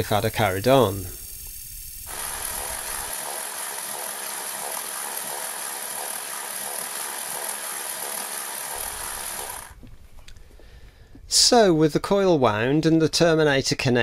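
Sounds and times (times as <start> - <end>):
electric screwdriver whining: 2.1 - 9.9.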